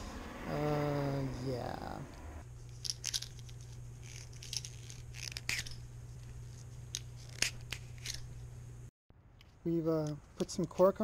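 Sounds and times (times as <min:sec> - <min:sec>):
steady low hum: 0:00.0 - 0:10.4.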